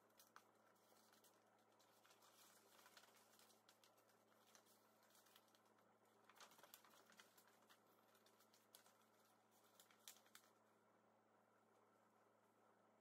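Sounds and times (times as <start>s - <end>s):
stiff paper crinkling and tapping: 0.0s - 10.7s.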